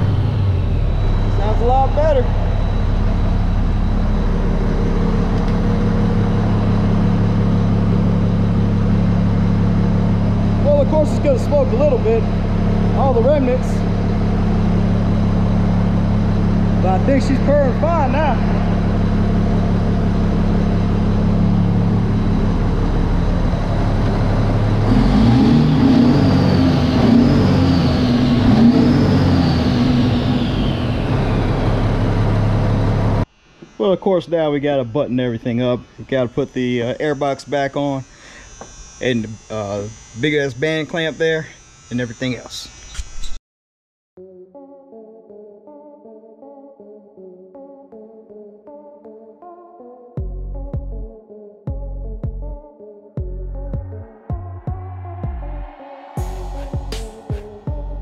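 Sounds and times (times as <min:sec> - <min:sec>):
diesel truck engine idling: 0:00.0 - 0:33.3, 0:56.2 - 0:58.0
faint high whine: 0:00.0 - 0:43.4, 0:55.8 - 0:58.0.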